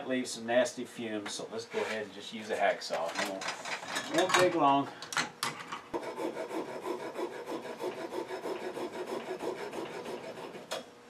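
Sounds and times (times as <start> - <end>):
hacksaw rasping: 6.0 - 10.8.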